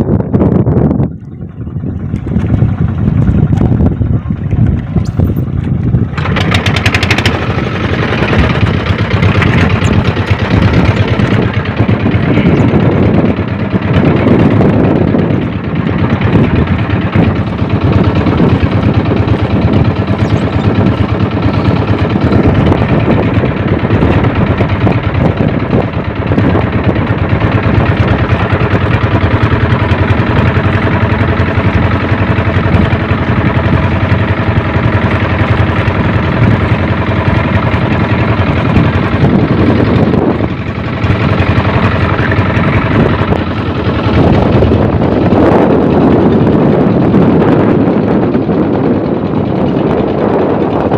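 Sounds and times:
boat engine running: 0.0 - 50.9.

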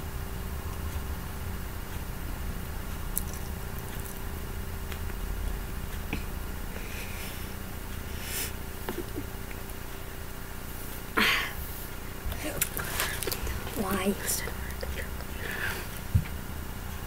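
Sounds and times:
low background hum: 0.0 - 17.0
breathy hiss: 6.2 - 8.7, 10.6 - 12.1, 12.8 - 16.0.

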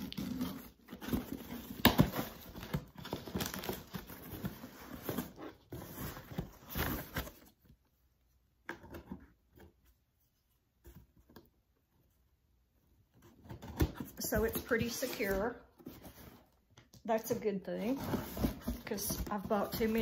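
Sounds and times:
tape tearing: 0.0 - 5.8
cardboard rustling: 0.0 - 7.8, 13.1 - 16.6, 17.3 - 20.0.

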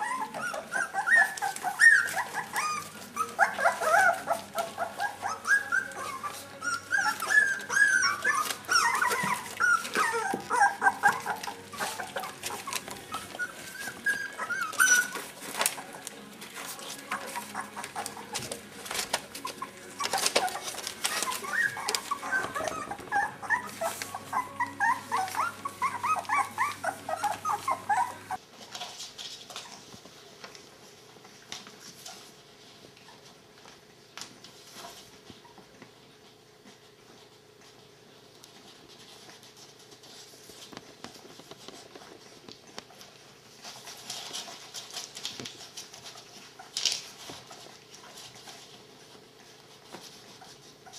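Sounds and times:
newspaper rustling: 0.0 - 29.8
puppies whimpering and squealing: 0.0 - 30.2, 30.8 - 50.9.

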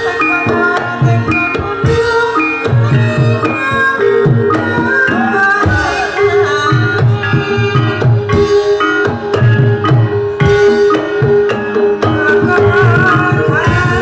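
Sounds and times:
wavering vocal line: 0.0 - 9.3, 10.4 - 14.0
struck keyed instruments melody: 0.0 - 14.0.

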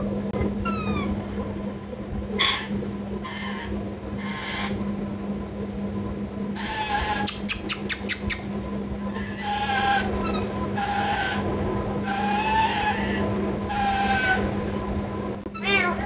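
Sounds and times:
low hum: 0.0 - 16.0
parakeets chattering calls: 0.6 - 1.2, 2.4 - 4.8, 6.6 - 8.5, 9.1 - 14.5.

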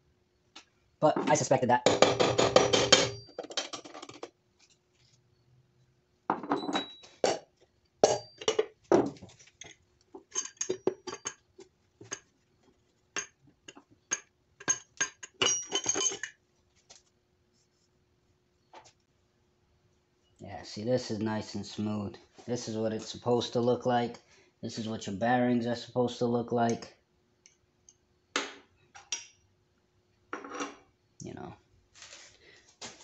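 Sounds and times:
metal parts clinking: 10.3 - 11.4, 14.1 - 16.4.

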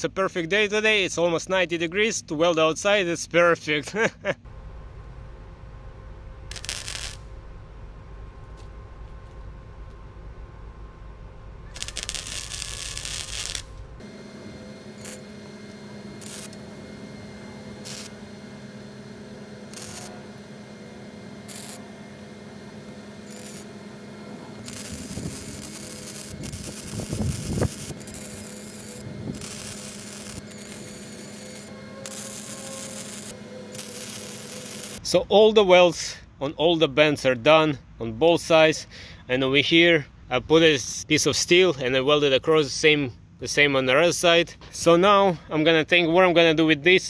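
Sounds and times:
steady hum: 3.9 - 36.4
welding arc crackling: 6.4 - 7.3, 11.7 - 35.0.

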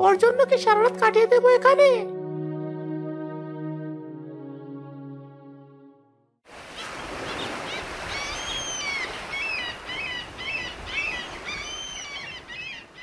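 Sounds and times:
sea surf: 6.5 - 13.0
birds chirping: 6.7 - 13.0.

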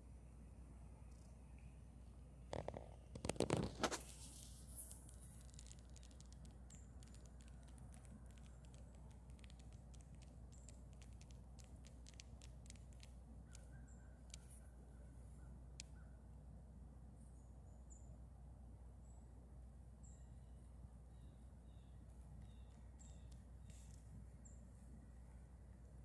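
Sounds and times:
faint ticks and clicks: 2.5 - 14.8, 15.7 - 16.0, 22.4 - 24.8.

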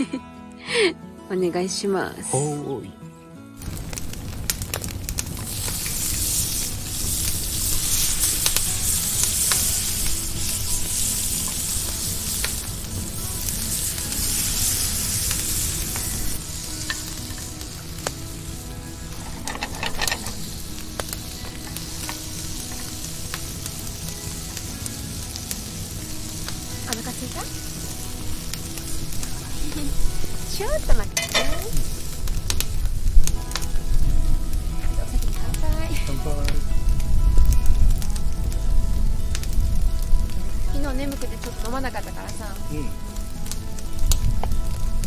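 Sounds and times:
oil popping: 3.6 - 33.8
squash sizzling in oil: 3.6 - 45.0.

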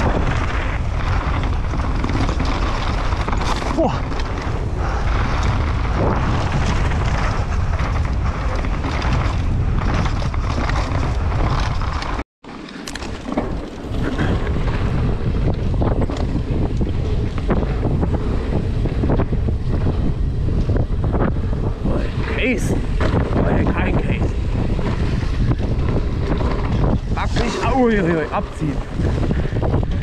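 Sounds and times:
wind buffeting microphone: 0.0 - 12.2, 12.9 - 30.0
mountain bike rumbling on dirt: 0.0 - 30.0.

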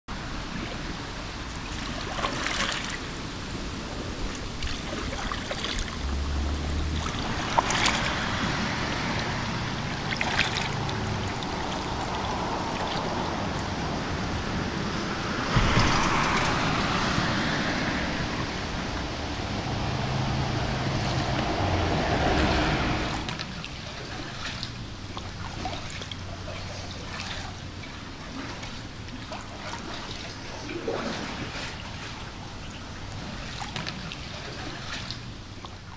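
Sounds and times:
paddle splashes: 0.1 - 35.9
water sloshing off paddles: 0.3 - 35.9.

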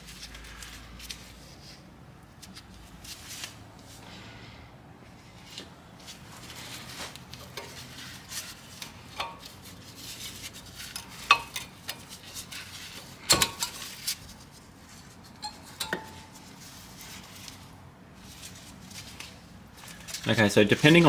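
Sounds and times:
metal tools clinking and clanking: 15.4 - 16.5.

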